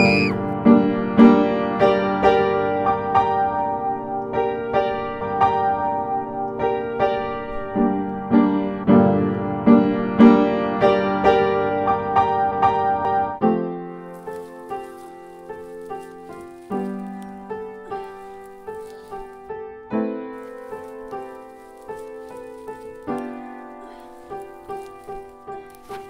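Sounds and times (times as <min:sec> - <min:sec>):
piano music: 0:00.0 - 0:26.0.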